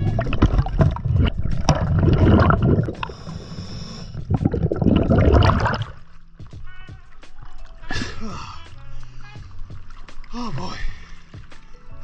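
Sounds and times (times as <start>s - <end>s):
diver exhaling bubbles: 0.0s - 6.0s
hissing breath in: 2.9s - 4.3s.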